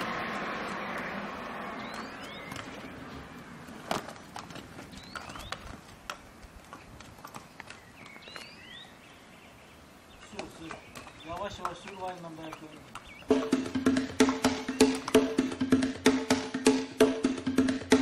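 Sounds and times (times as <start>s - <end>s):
birds chirping: 0.0s - 15.9s
horse hooves clip-clopping: 1.8s - 9.0s, 10.2s - 15.8s.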